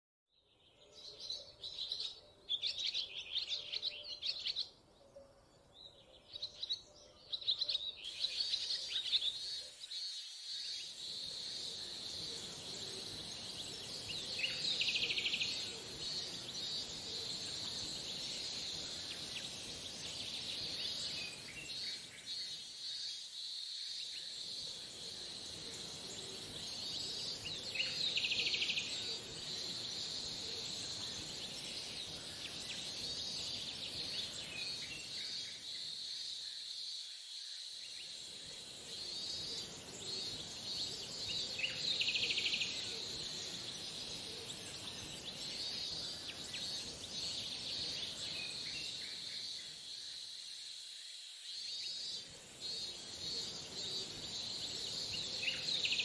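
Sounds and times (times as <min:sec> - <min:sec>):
cicadas droning: 0:00.6 - 0:56.0.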